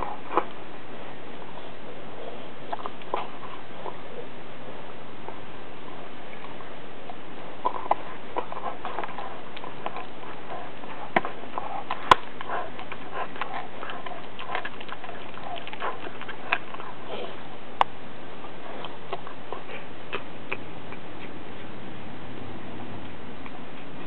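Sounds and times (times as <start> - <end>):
dog gnawing on bone: 2.5 - 4.1, 5.8 - 21.8.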